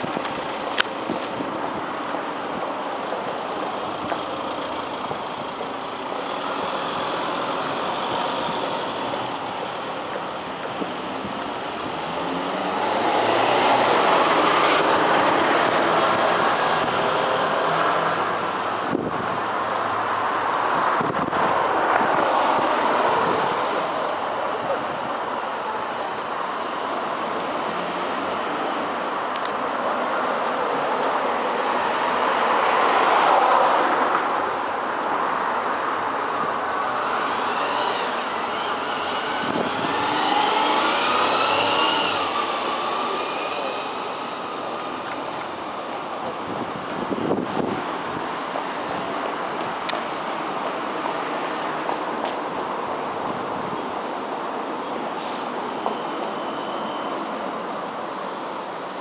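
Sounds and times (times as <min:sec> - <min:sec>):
city street traffic rushing: 0:00.0 - 0:59.0
steady outdoor hiss: 0:00.0 - 0:59.0
vehicle passing: 0:11.8 - 0:18.8, 0:30.1 - 0:45.7.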